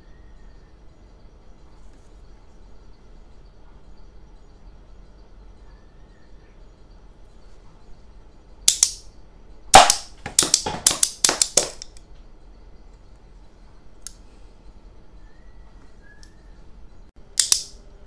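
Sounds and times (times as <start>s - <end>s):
pistol clicks: 8.7s - 9.0s, 9.8s - 12.0s, 17.4s - 17.8s
rubber band pistol snaps: 8.7s - 9.0s, 9.8s - 12.0s, 17.4s - 17.8s.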